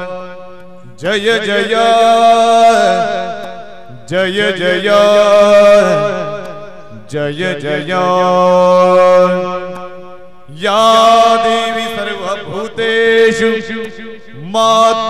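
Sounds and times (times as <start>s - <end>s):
person singing devotional phrases: 0.0s - 9.8s, 10.5s - 15.0s
steady drone: 0.0s - 14.6s.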